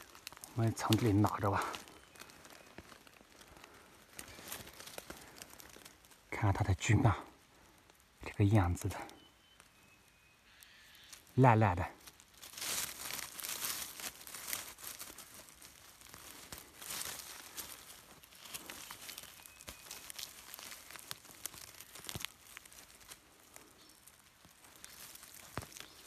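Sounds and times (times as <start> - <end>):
small twig snaps: 0.0 - 6.2, 12.0 - 26.0
dry leaves and twigs rustling: 0.0 - 26.0.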